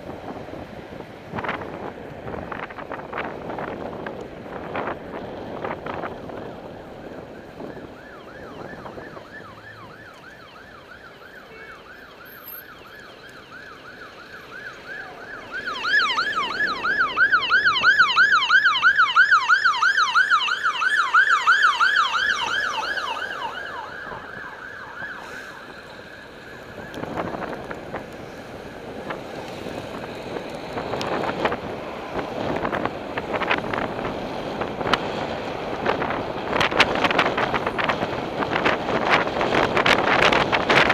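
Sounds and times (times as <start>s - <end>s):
wind on microphone: 0.0s - 9.6s, 26.5s - 40.9s
passing traffic: 0.0s - 40.9s
ambulance siren wailing: 2.5s - 40.9s.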